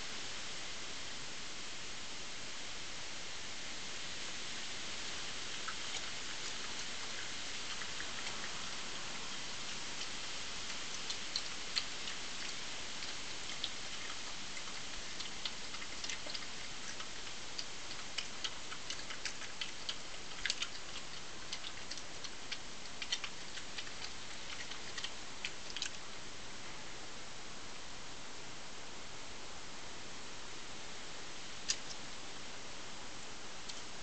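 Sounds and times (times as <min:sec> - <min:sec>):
steady hiss: 0:00.0 - 0:34.0
crisp crunching clicks of badger feeding: 0:05.4 - 0:26.2, 0:31.6 - 0:32.1, 0:33.6 - 0:34.0.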